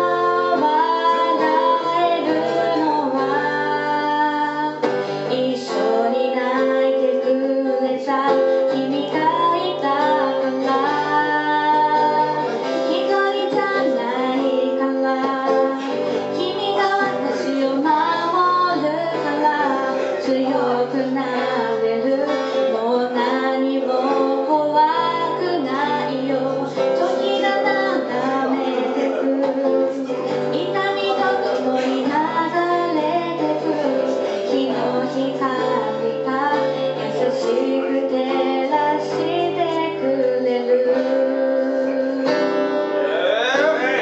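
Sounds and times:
woman singing: 0.0 - 43.0
acoustic guitar: 0.0 - 44.0.

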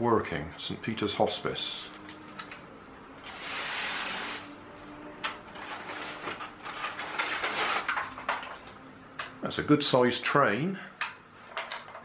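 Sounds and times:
plastic scraping on polystyrene: 3.2 - 4.5, 5.5 - 8.2.

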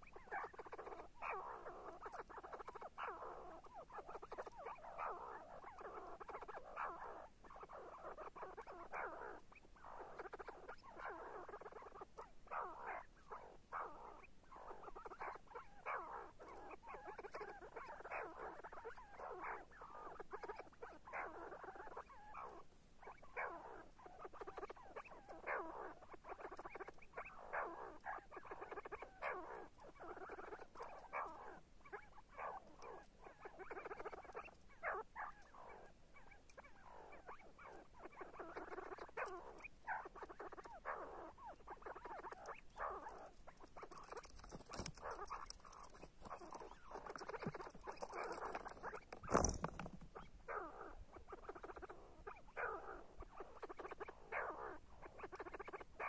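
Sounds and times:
partridge calling: 0.0 - 56.0.

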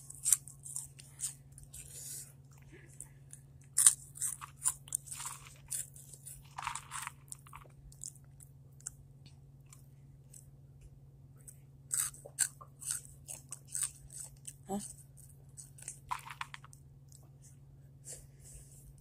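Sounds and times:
chips being crunched and chewed: 3.6 - 9.0, 11.9 - 17.2.

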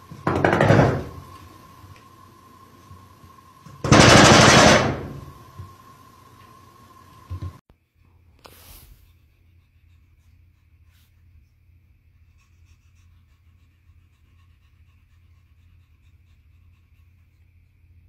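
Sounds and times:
steady low hum: 0.0 - 18.0
cat panting: 12.2 - 17.8.

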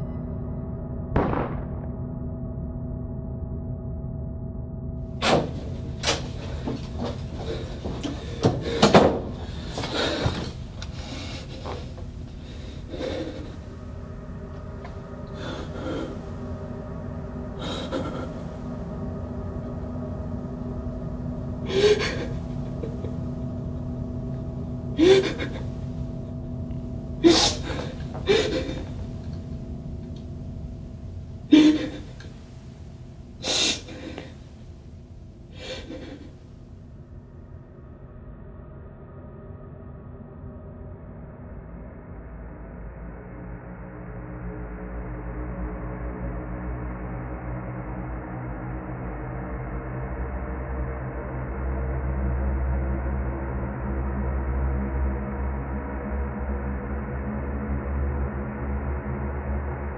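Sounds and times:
steady low drone: 0.0 - 59.9
person gasping breaths: 5.6 - 13.8, 15.2 - 16.4, 17.6 - 18.6, 21.7 - 23.3, 24.9 - 26.0, 27.2 - 29.4, 31.5 - 32.4, 33.4 - 34.6, 35.5 - 36.4
man sobbing and gasping: 17.6 - 18.6, 21.7 - 23.9, 24.9 - 25.8, 27.2 - 29.3, 31.5 - 32.3, 35.6 - 36.3.

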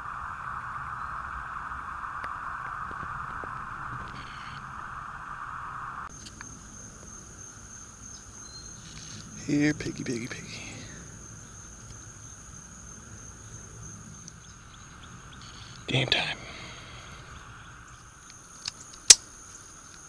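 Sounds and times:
high thin insect trill: 6.1 - 20.0.

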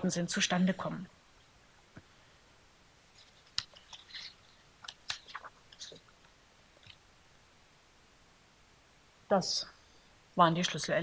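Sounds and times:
papers rustling: 3.1 - 7.0.

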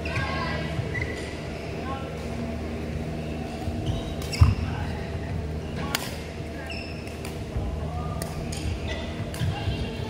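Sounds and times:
shoes squeaking on court: 0.0 - 1.5, 3.7 - 4.7.

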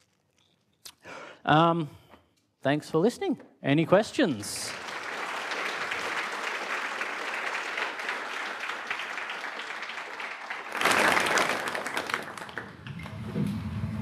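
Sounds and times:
audience applauding: 4.4 - 13.3.

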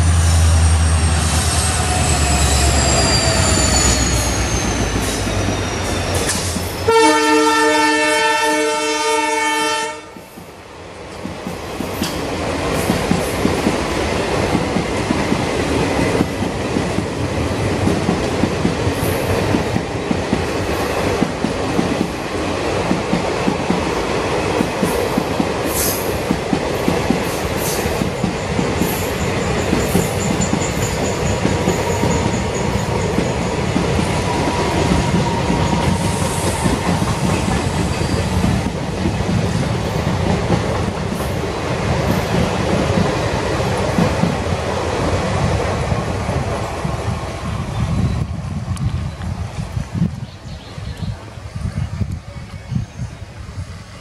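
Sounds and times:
diesel locomotive engine whine: 0.0 - 54.0
high wheel squeal: 0.8 - 6.9, 29.0 - 38.4
train horn: 6.8 - 10.3.

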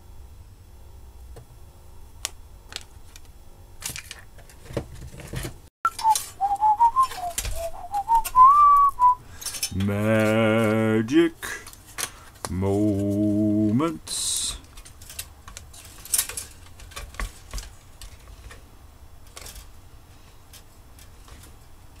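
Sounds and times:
plastic parts clicking and rattling: 2.7 - 6.3, 9.4 - 10.8, 14.6 - 18.6, 19.2 - 19.7
man whistling: 5.9 - 9.2.

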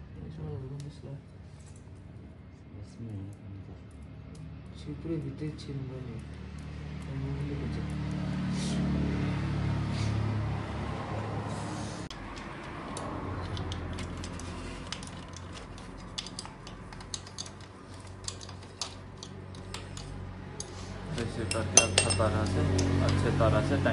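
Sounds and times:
metal tools clicking and clinking: 12.3 - 23.3.

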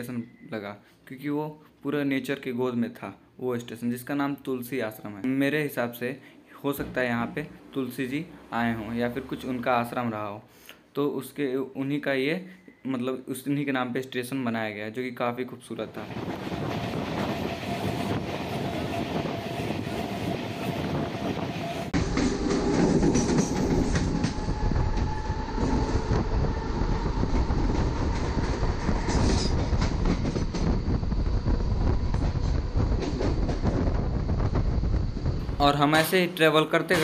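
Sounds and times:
train wheels clattering on rails: 16.0 - 25.8, 27.4 - 36.2
rushing air: 16.0 - 35.9.

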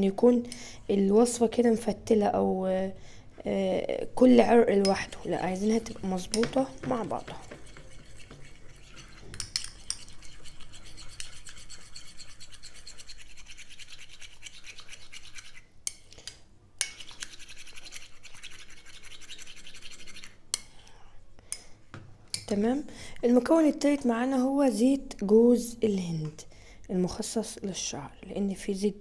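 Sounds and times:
metal spoon whisking in bowl: 4.3 - 16.1, 16.8 - 20.4.

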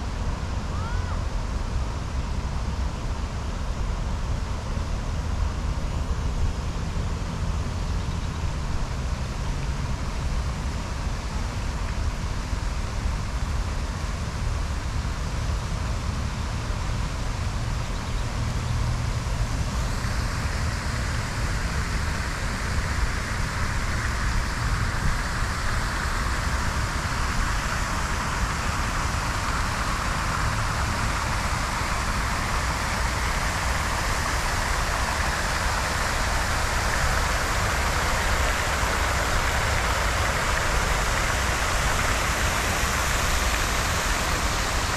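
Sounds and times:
fountain water splashing: 0.0 - 44.9.

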